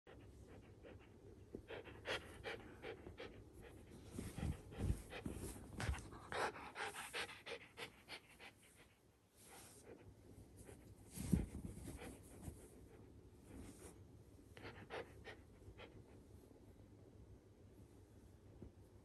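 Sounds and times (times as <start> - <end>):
dog panting: 0.1 - 9.0, 14.6 - 16.1.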